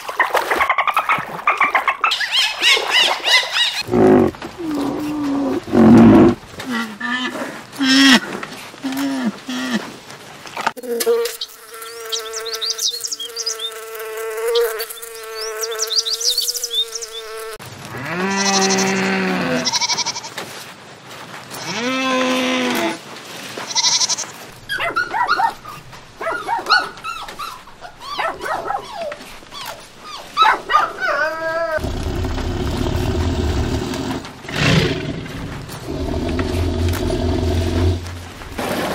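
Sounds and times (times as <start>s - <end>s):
bee buzzing: 3.8s - 6.4s, 10.8s - 17.6s, 31.8s - 38.6s
goats bleating: 18.4s - 20.3s
puppies whimpering and yipping: 24.7s - 31.8s.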